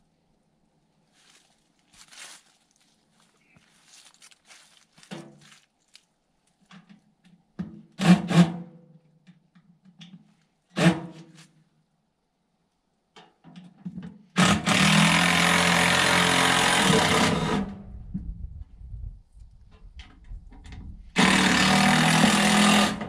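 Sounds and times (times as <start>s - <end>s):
power tool whirring: 14.4s - 17.7s, 21.2s - 23.0s.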